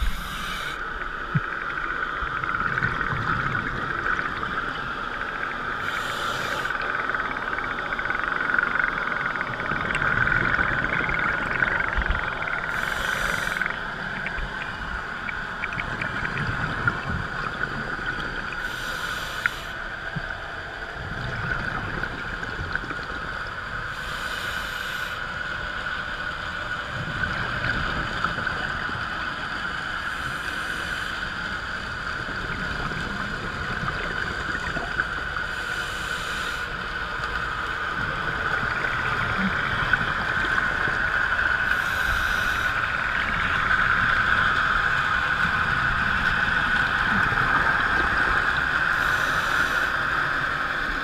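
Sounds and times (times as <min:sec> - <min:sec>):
underwater hiss: 0:00.0 - 0:01.0, 0:05.6 - 0:07.2, 0:10.0 - 0:16.2, 0:17.0 - 0:20.2, 0:23.8 - 0:25.8, 0:26.4 - 0:51.0
regulator bubbles burbling: 0:00.0 - 0:05.8, 0:06.6 - 0:18.8.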